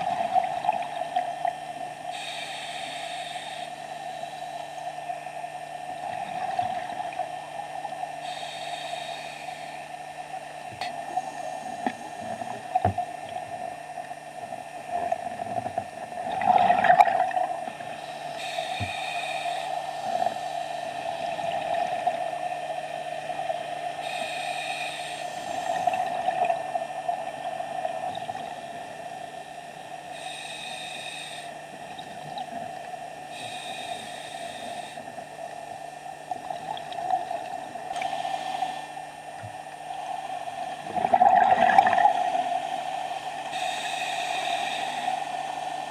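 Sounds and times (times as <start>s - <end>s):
steady hum: 0.0s - 45.9s
regulator inhalation hiss: 0.1s - 12.4s, 17.4s - 27.8s, 28.6s - 31.8s, 33.2s - 35.9s, 37.9s - 40.9s, 41.7s - 45.9s
exhaled bubbles rushing: 16.3s - 17.5s, 40.9s - 42.1s.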